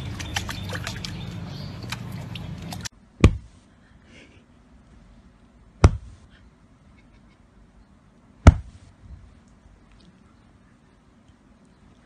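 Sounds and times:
puppy lapping water: 0.0s - 2.9s
sharp thump: 3.2s - 3.5s, 5.8s - 6.2s, 8.4s - 8.8s.

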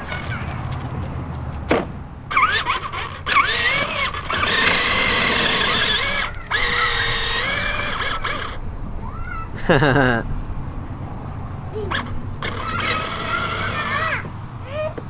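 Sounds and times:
toy electric motor whining: 2.3s - 8.6s, 11.8s - 14.3s.

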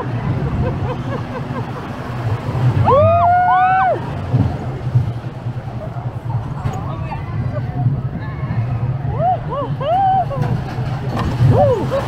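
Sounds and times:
roller coaster rumbling on track: 0.0s - 12.0s
riders whooping: 2.1s - 4.3s, 9.0s - 12.0s.

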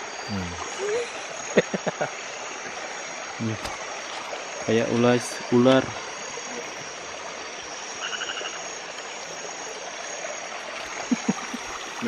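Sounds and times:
crickets and insects droning: 0.0s - 12.0s
stream water flowing: 0.0s - 12.0s
rapid pulsed animal call: 6.0s - 12.0s.

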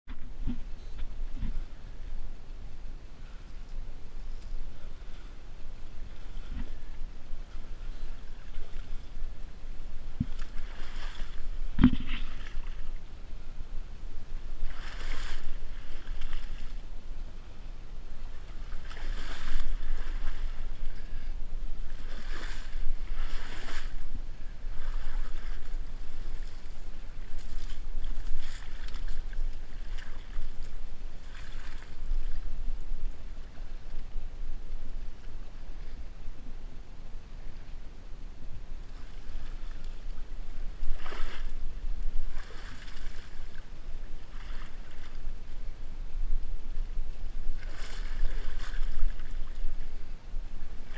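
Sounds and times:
reeds scraping along kayak hull: 3.5s - 13.0s, 14.6s - 16.8s, 18.3s - 21.2s, 21.8s - 32.5s, 38.9s - 45.3s, 47.5s - 50.1s.

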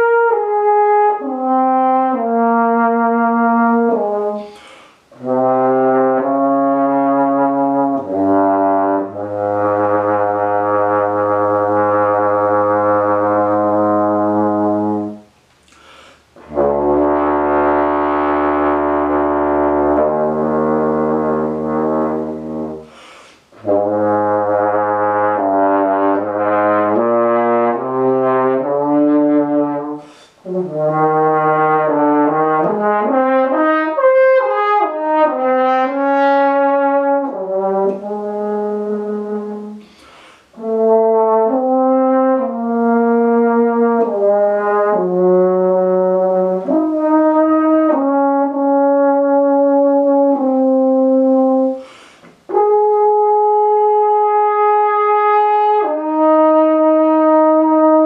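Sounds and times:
french horn long notes: 0.0s - 15.4s, 16.0s - 58.0s
player breathing: 4.4s - 5.1s, 15.6s - 16.4s, 22.8s - 23.5s, 30.0s - 30.4s, 39.8s - 40.6s, 51.8s - 52.4s.

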